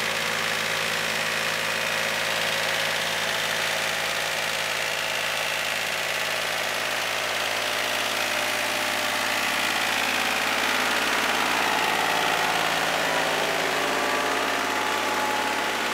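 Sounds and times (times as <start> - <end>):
tractor diesel engine droning: 0.0 - 15.9.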